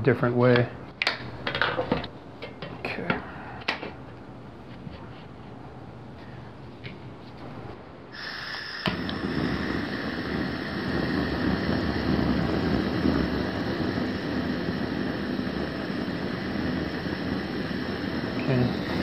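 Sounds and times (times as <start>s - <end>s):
torch flame burning: 5.7s - 19.0s
gas hissing from valve: 8.1s - 19.0s
torch igniter click: 8.2s - 19.0s.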